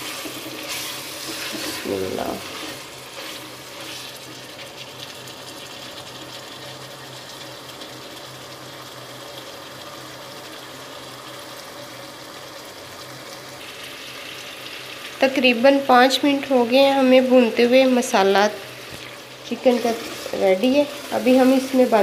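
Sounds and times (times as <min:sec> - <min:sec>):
wooden spatula stirring: 0:00.0 - 0:04.8, 0:18.8 - 0:22.0
food sizzling in a pot: 0:00.0 - 0:22.0.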